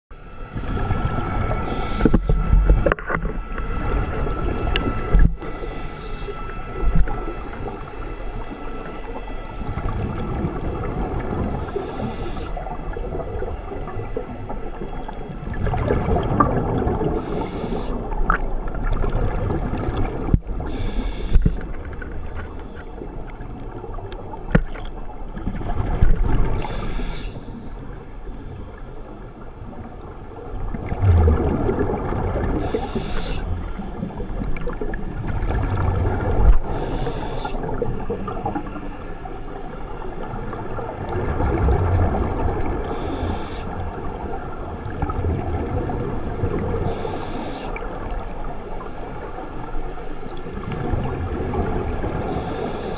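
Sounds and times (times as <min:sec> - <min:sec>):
regulator hissing inhalation: 0:01.7 - 0:02.3, 0:17.2 - 0:18.0, 0:20.7 - 0:21.4, 0:26.6 - 0:27.4, 0:32.6 - 0:33.5, 0:36.7 - 0:37.7, 0:42.9 - 0:43.7, 0:46.9 - 0:47.7, 0:52.3 - 0:52.9.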